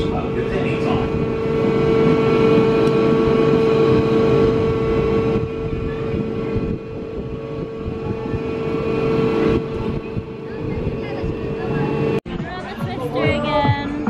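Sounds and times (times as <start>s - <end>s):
ride machinery humming: 0.0s - 14.0s.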